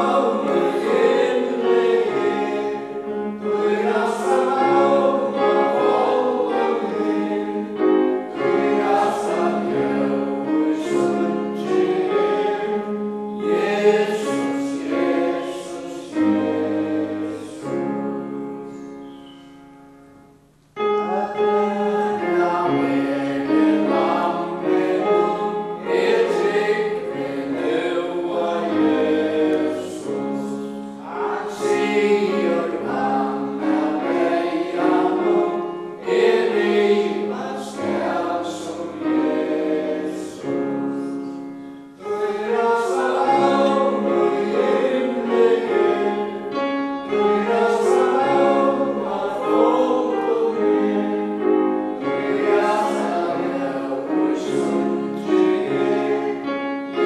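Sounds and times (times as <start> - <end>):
congregation singing a hymn: 0.0 - 57.0.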